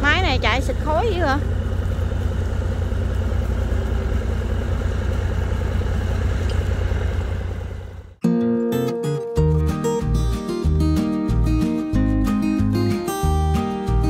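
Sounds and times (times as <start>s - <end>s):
engine running with low throb: 0.0s - 8.2s
strummed acoustic guitar music: 8.2s - 14.0s.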